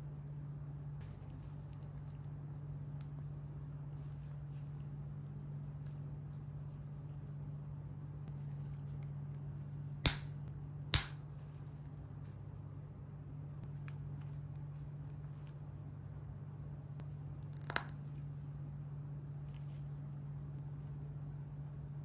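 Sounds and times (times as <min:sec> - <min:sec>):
steady low hum: 0:00.0 - 0:22.0
plastic bricks snapping together: 0:10.0 - 0:11.2.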